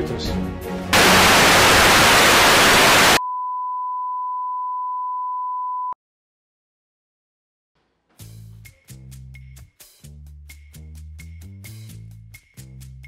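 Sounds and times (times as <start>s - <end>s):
tv static hiss: 1.0s - 3.2s
steady test-tone beep: 3.2s - 6.0s.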